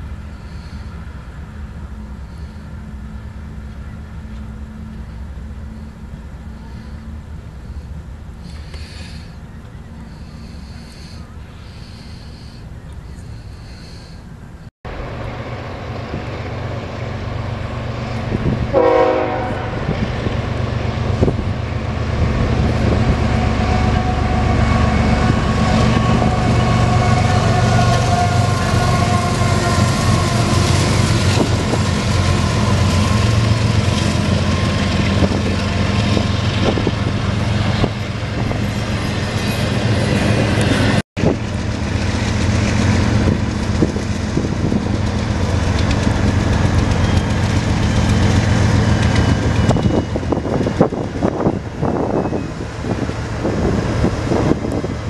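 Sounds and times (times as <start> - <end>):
freight train rumbling past: 0.0 - 55.0
locomotive approaching: 0.0 - 55.0
train horn blast: 18.4 - 20.0, 23.4 - 33.8
train wheels clattering: 25.1 - 52.3.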